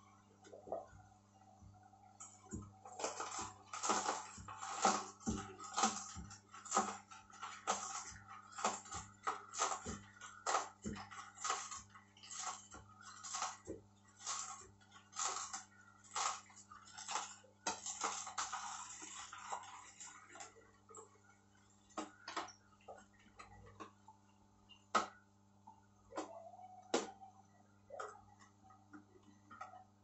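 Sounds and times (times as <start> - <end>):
juicer motor hum: 1.6 - 22.3.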